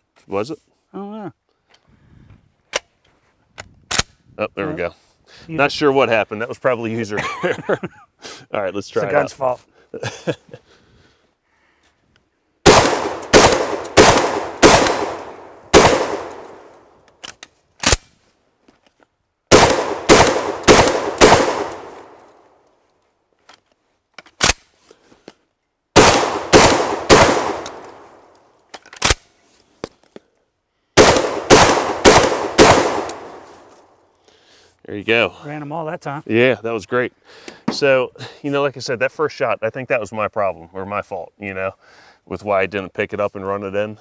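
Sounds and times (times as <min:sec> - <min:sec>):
shotgun shots: 0:12.6 - 0:16.7, 0:19.5 - 0:22.2, 0:26.0 - 0:28.3, 0:31.0 - 0:33.7
sharp metallic clicks: 0:12.7 - 0:18.0, 0:19.5 - 0:22.2, 0:26.0 - 0:29.2, 0:31.0 - 0:33.4.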